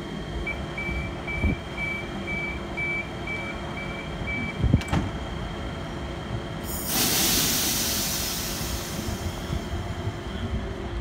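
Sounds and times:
train door warning beeps: 0.4 - 5.2.

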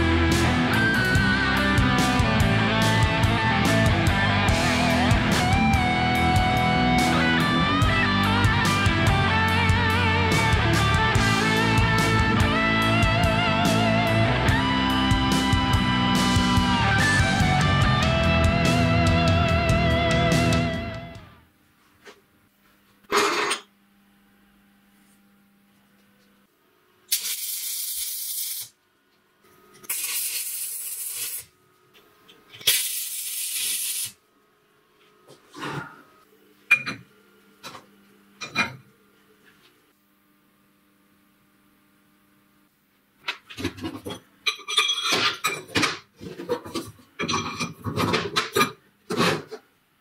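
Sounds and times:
arc welder crackling hiss: 27.1 - 28.8, 29.8 - 31.6, 32.6 - 34.2.

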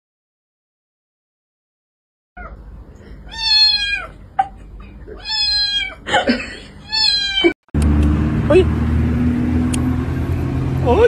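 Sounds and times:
cat meowing: 2.4 - 2.6, 3.3 - 4.2, 5.1 - 6.0, 6.8 - 7.6.

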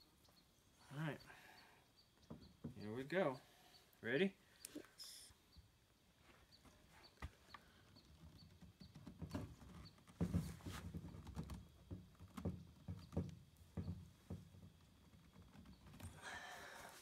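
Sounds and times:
plastic pipe knocking and scraping: 2.2 - 2.9, 6.7 - 16.2.

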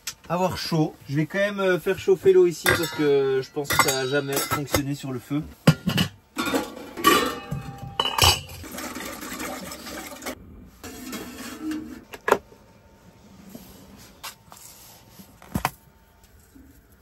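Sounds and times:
pot and lid clinking: 2.7 - 4.8, 5.7 - 8.6.

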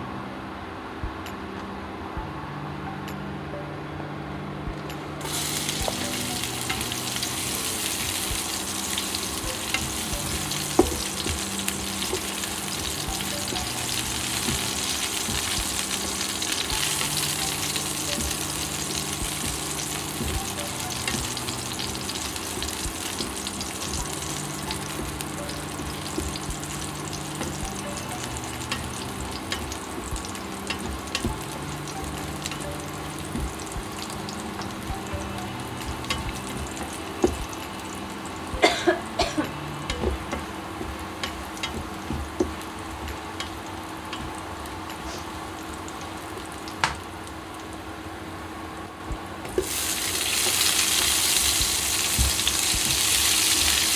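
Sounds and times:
garlic sizzling in hot oil: 5.2 - 47.8, 49.5 - 53.9.

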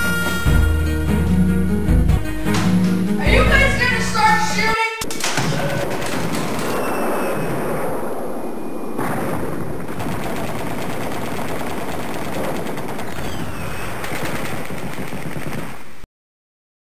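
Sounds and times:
machine-gun fire: 5.0 - 16.0.

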